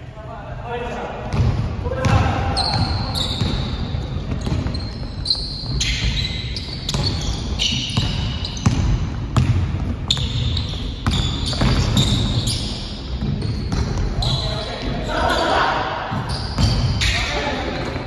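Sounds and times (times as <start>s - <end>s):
sneakers squeaking on floor: 1.2s - 18.0s
basketball bouncing: 1.3s - 12.5s, 13.1s - 14.2s, 16.1s - 17.0s.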